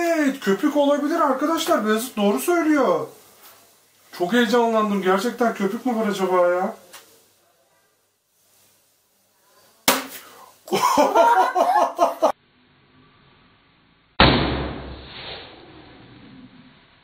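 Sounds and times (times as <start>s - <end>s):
balloon popping: 9.9s - 10.3s, 14.2s - 15.3s.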